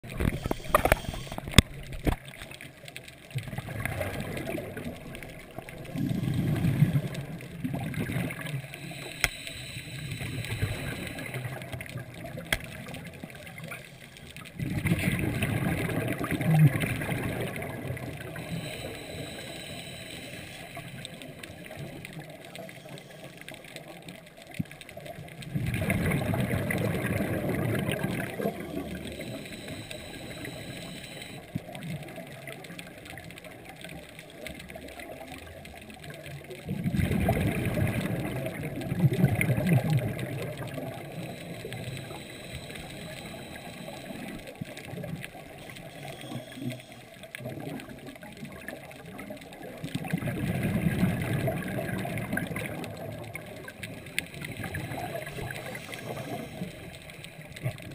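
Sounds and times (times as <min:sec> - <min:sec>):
underwater exhaust bubbles: 0:00.0 - 0:57.9
low steady hiss: 0:00.1 - 0:57.9.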